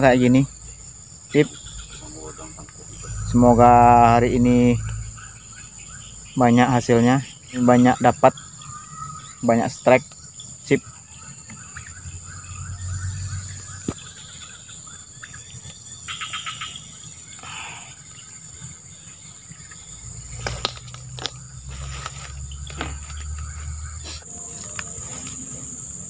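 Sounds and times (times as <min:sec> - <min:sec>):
insects shrilling: 0:00.0 - 0:26.0
wavering chirps: 0:00.0 - 0:26.0.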